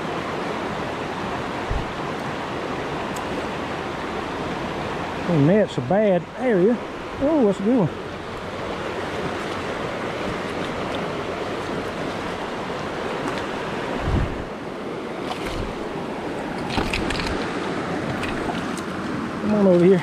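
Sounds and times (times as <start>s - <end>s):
creek running over stones: 0.1s - 20.0s
low thump: 1.7s - 2.0s.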